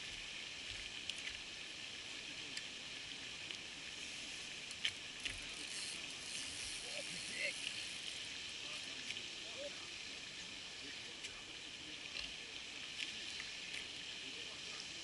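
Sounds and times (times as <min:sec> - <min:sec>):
high-pitched hiss: 0:05.4 - 0:09.8.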